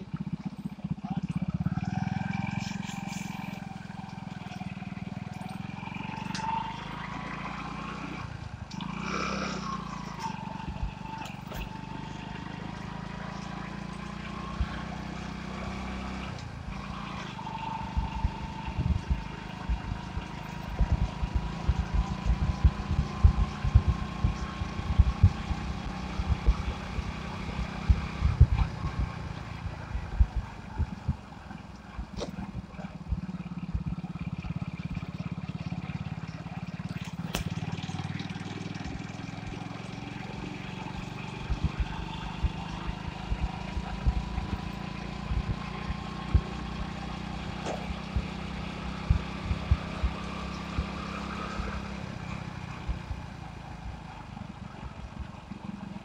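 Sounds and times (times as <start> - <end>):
motorcycle engine running: 0.0 - 56.0
low thumps on microphone: 18.0 - 26.9, 27.8 - 34.0, 41.4 - 46.7.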